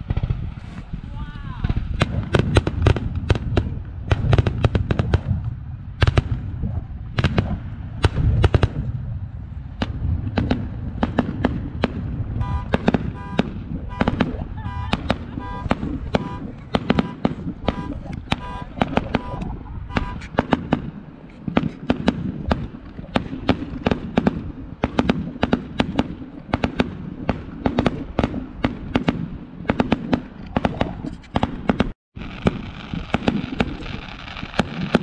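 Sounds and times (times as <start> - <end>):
low rumble: 0.0 - 25.4
fireworks bangs and crackles: 0.0 - 35.0
short beeping tone: 12.4 - 20.3.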